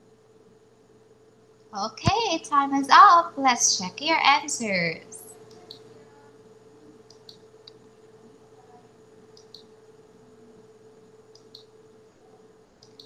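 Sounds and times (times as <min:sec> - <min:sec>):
faint steady hum: 0:00.0 - 0:13.0
computer mouse clicks: 0:07.1 - 0:07.8, 0:09.3 - 0:09.7, 0:11.3 - 0:11.7, 0:12.8 - 0:13.0.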